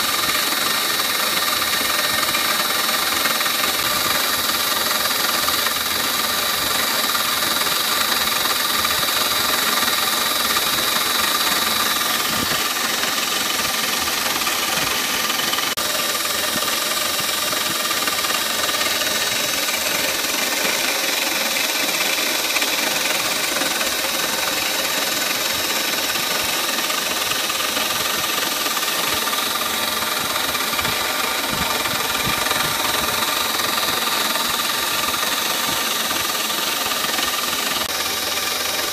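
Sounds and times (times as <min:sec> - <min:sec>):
high spindle whine: 0:00.0 - 0:38.9
milling cutter hissing through plastic: 0:00.0 - 0:38.9.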